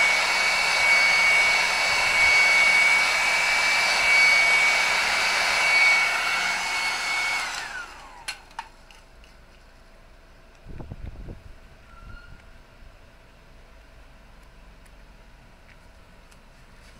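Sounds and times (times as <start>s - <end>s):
heat gun blowing air with whine: 0.0s - 8.7s.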